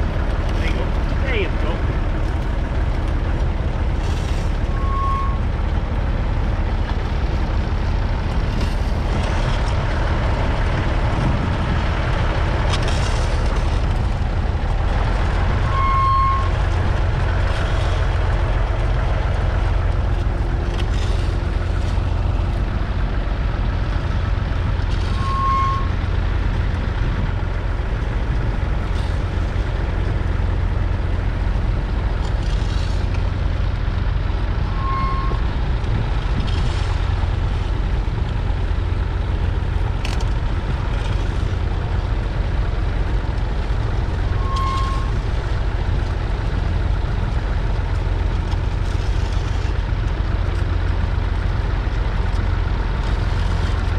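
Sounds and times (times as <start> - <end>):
diesel tractor engine under load: 0.0 - 53.9
short high beep: 4.8 - 5.4, 15.7 - 16.5, 25.2 - 25.9, 34.7 - 35.4, 44.4 - 45.1.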